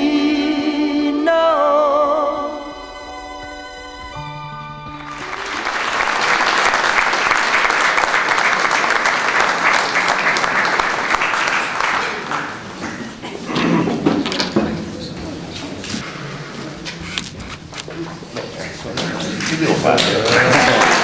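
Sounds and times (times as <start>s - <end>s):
audience applauding: 5.0s - 14.6s, 18.6s - 21.0s.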